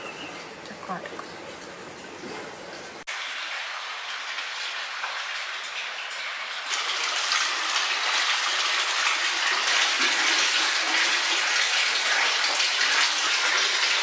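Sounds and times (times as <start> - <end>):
water pouring into rock bath: 3.0 - 14.0.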